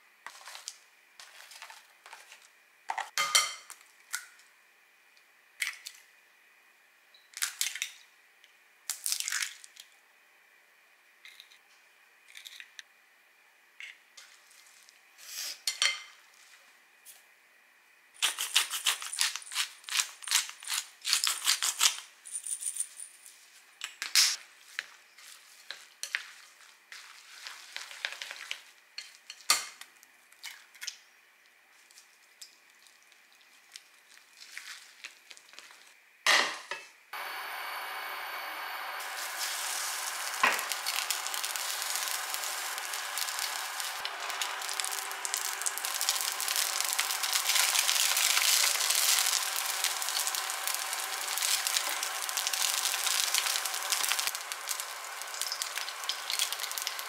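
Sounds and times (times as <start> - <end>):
batter sizzling in oil: 24.6 - 30.1, 37.2 - 57.0
egg cracking: 39.1 - 57.0.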